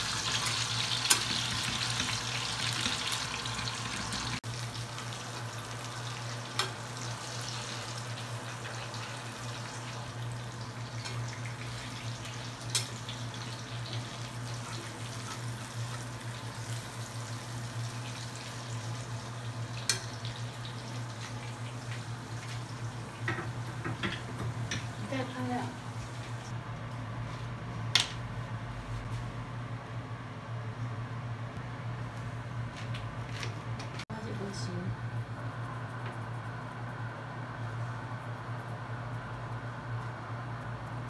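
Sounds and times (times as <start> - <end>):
fish sizzling in oil: 0.0 - 26.5
steady low hum: 6.4 - 41.0.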